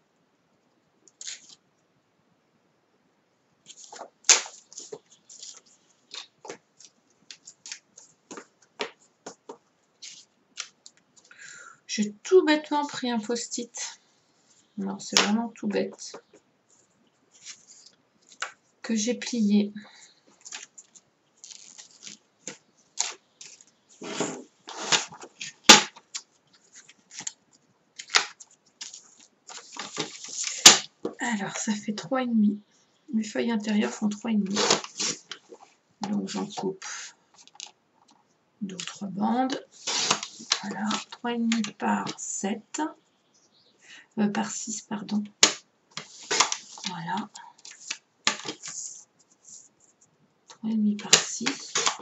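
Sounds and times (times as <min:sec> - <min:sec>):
sharp paper crack: 0:01.2 - 0:01.6, 0:03.7 - 0:09.0, 0:20.4 - 0:27.4, 0:28.0 - 0:31.0, 0:34.0 - 0:35.7, 0:39.7 - 0:41.8, 0:45.4 - 0:47.0, 0:47.6 - 0:49.6, 0:51.1 - 0:52.0
paper crackling and rustling: 0:03.7 - 0:11.3, 0:14.5 - 0:18.6, 0:20.2 - 0:31.2, 0:33.7 - 0:38.2, 0:38.8 - 0:42.2, 0:45.4 - 0:50.1, 0:51.0 - 0:52.0.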